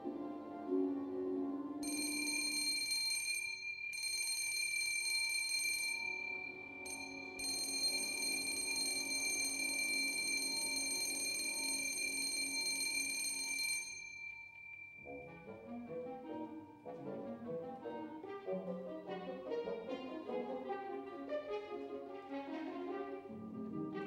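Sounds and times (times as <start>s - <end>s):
soft orchestral music: 0.0s - 2.4s, 6.0s - 9.8s, 15.0s - 24.0s
electric bell ringing: 1.8s - 15.9s.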